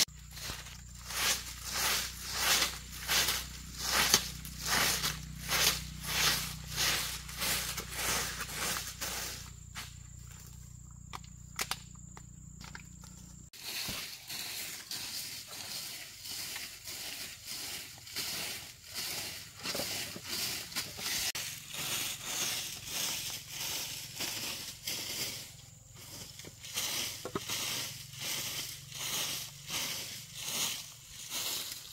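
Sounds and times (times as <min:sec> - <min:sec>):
broom swishing on dirt floor: 0:00.0 - 0:10.6, 0:13.5 - 0:31.9.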